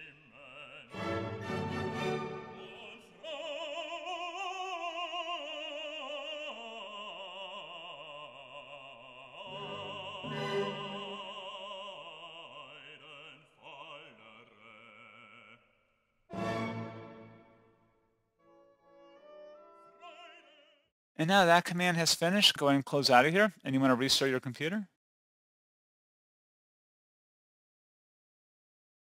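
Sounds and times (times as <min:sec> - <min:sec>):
operatic singing: 0:00.0 - 0:17.7, 0:19.6 - 0:21.4
instrumental accompaniment: 0:09.5 - 0:11.2.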